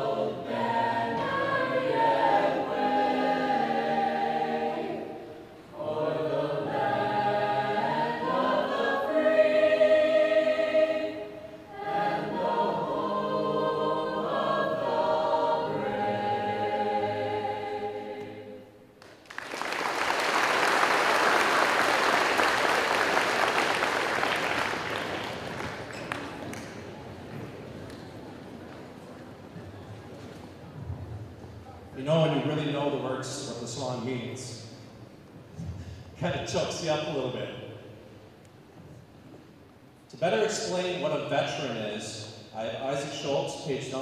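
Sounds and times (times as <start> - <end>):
choir singing unaccompanied: 0.0 - 18.9
audience applauding: 19.0 - 27.2.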